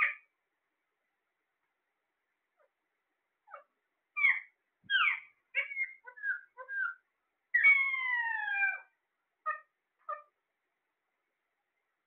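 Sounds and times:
parakeets chirping and squawking: 0:03.5 - 0:08.9.

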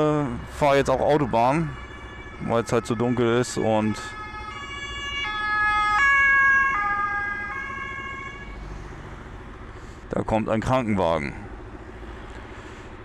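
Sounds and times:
two-tone ambulance siren: 0:00.0 - 0:09.8.

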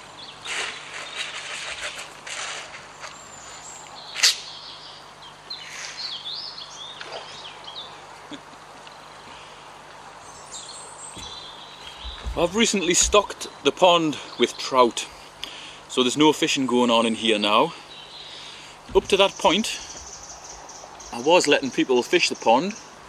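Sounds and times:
birds chirping: 0:02.9 - 0:23.0.

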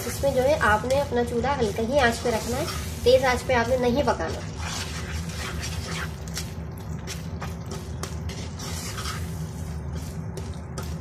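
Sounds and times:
steady low hum: 0:00.0 - 0:11.0
wooden spatula scraping thick mixture: 0:00.0 - 0:11.0.

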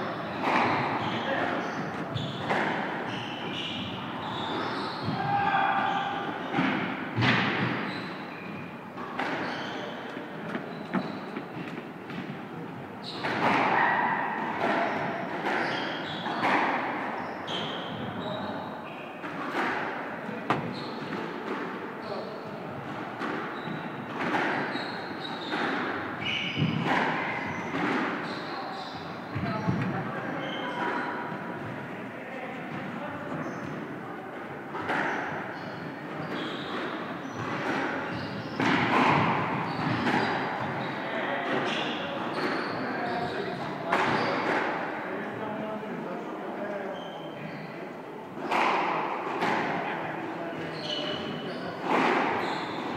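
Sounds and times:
sports shoes squeaking on wood floor: 0:00.0 - 0:06.6, 0:07.2 - 0:12.4, 0:13.0 - 0:19.7, 0:20.3 - 0:21.2, 0:22.0 - 0:31.8, 0:32.7 - 0:33.9, 0:34.8 - 0:44.6, 0:46.8 - 0:47.8, 0:50.5 - 0:52.9
squash ball thuds echoing: 0:00.2 - 0:07.9, 0:22.8 - 0:28.2, 0:36.8 - 0:40.9, 0:51.8 - 0:52.9
squash ball bouncing: 0:25.5 - 0:28.1, 0:37.4 - 0:40.8.

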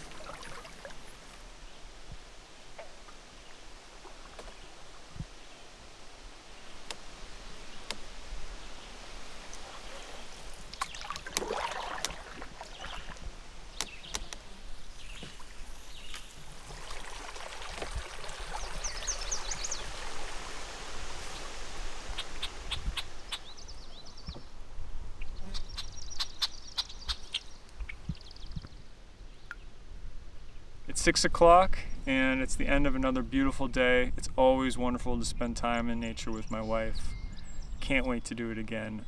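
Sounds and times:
steady soft hiss: 0:00.0 - 0:10.9
high twittering bird calls: 0:22.2 - 0:24.5, 0:25.2 - 0:29.7, 0:36.4 - 0:38.4.

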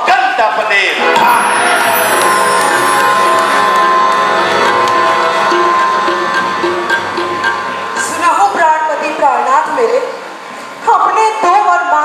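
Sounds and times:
instrumental stage music: 0:00.9 - 0:09.2.

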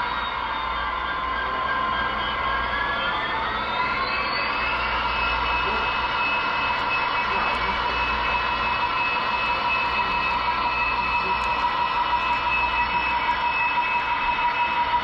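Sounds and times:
model train running: 0:02.8 - 0:15.0.

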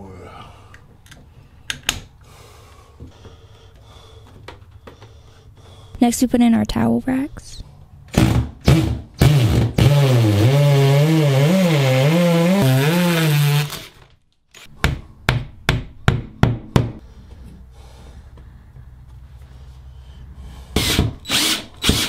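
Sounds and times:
power drill boring: 0:08.6 - 0:14.0, 0:20.8 - 0:22.0.

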